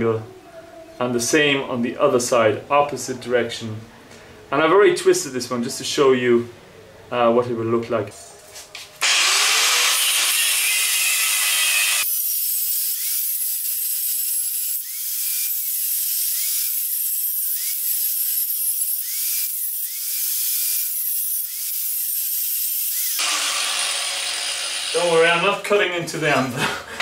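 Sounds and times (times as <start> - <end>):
angle grinder cutting steel: 9.0 - 25.6.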